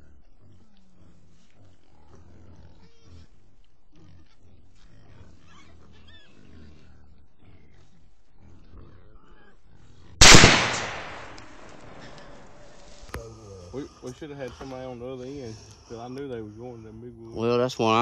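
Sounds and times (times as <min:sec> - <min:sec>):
hogs grunting and squealing: 0:00.0 - 0:10.2, 0:11.0 - 0:18.0
loud gunshot: 0:10.2 - 0:12.4.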